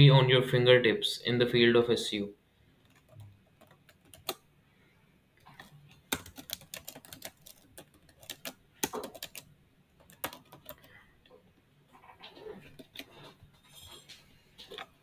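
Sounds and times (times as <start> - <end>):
keyboard typing: 2.8 - 4.4, 5.5 - 11.0, 12.4 - 13.3.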